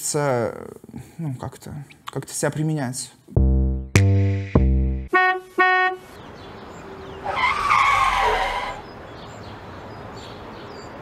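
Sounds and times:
outdoor ambience: 5.1 - 11.0.

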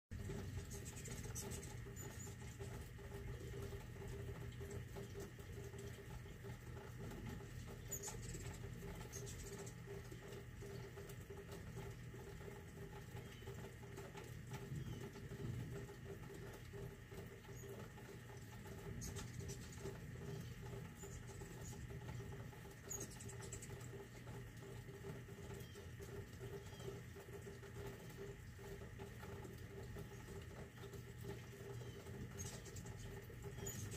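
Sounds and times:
rain pattering: 0.1 - 33.9
hummingbird chirps: 0.2 - 4.3, 7.1 - 11.2, 11.8 - 13.8, 14.6 - 16.5, 17.2 - 24.7, 25.3 - 28.4, 30.0 - 33.9.

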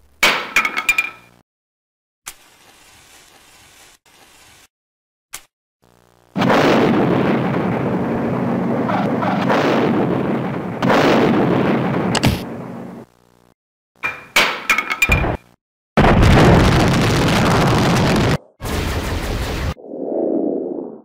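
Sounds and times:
cartoon explosion: 6.4 - 12.6, 16.0 - 21.0
sharp crack: 12.2 - 12.5.

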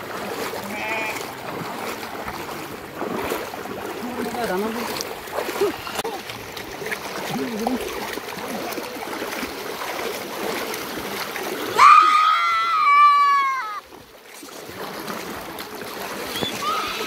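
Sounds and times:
splashing through muddy water: 0.0 - 17.0
loud high wavering cry: 16.5 - 17.0.

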